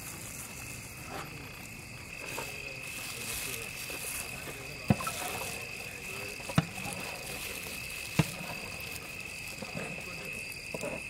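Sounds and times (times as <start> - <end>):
high-pitched whine and hiss: 0.0 - 11.0.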